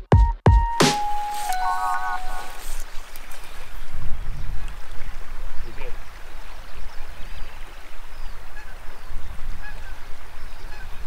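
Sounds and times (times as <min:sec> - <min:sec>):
stream rushing: 0:00.7 - 0:11.0
bird calls: 0:00.8 - 0:11.0
wind buffeting microphone: 0:02.3 - 0:11.0.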